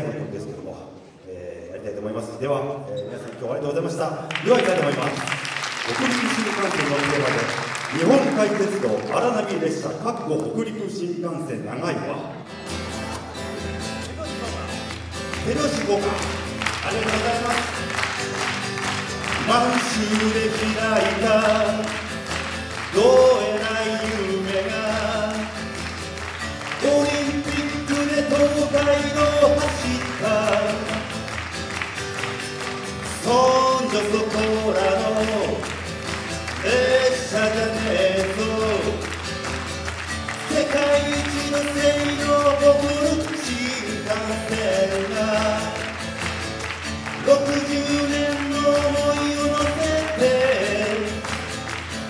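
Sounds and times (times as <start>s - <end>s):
acoustic guitar: 12.2s - 52.0s
man singing: 14.0s - 31.5s, 32.6s - 52.0s.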